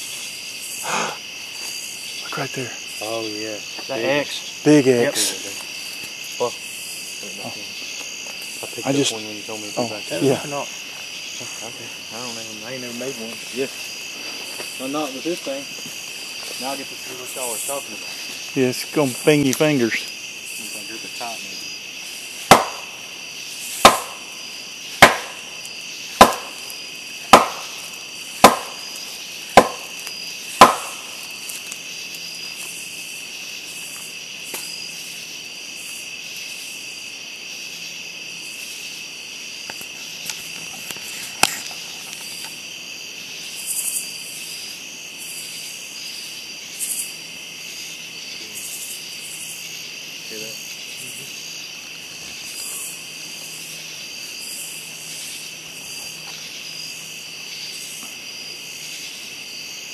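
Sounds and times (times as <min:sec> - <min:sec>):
crickets and insects chirring: 0:00.0 - 0:59.9
stick knocking on tree trunk: 0:22.5 - 0:22.9, 0:23.8 - 0:24.2, 0:25.0 - 0:25.4, 0:26.2 - 0:26.6, 0:27.3 - 0:27.8, 0:28.4 - 0:28.8, 0:29.6 - 0:29.9, 0:30.6 - 0:31.0.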